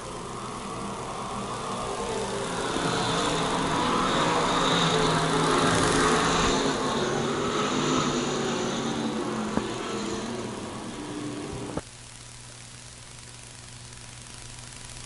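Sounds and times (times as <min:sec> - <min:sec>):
race car engines passing: 0:00.0 - 0:11.8.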